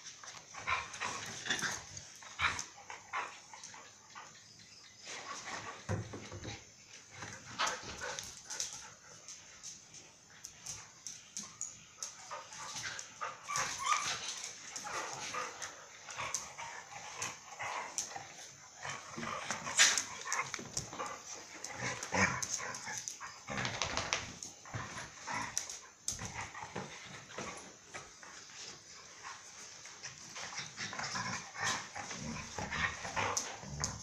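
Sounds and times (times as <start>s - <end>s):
dogs yipping and barking: 11.4s - 23.9s.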